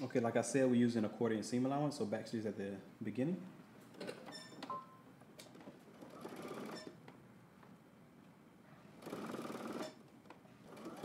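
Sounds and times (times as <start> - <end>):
sewing machine stitching: 5.5 - 7.0, 9.0 - 10.0, 10.6 - 11.0.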